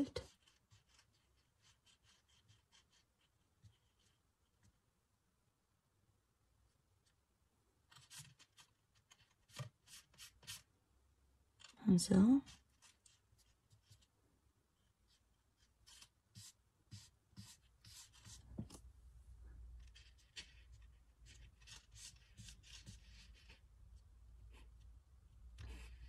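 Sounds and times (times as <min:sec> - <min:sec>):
fingertips rubbing on paper: 0:19.8 - 0:23.7.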